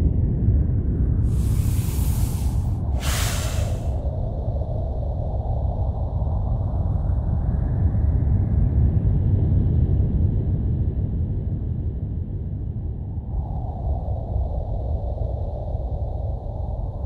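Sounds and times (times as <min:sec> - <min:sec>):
low rumbling ambient drone: 0:01.2 - 0:04.1.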